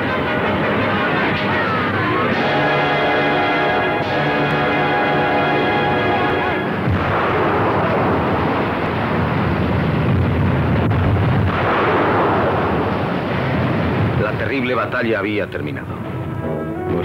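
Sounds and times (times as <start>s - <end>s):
music: 0.0s - 6.8s, 15.5s - 17.0s
artillery fire and explosions: 0.0s - 16.3s
sharp crack: 6.7s - 15.0s.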